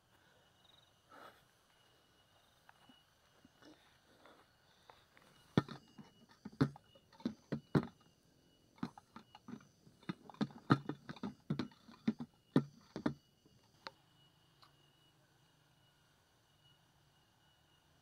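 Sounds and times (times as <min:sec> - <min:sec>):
insects knocking against plastic tray: 0:05.5 - 0:08.2, 0:08.8 - 0:13.6.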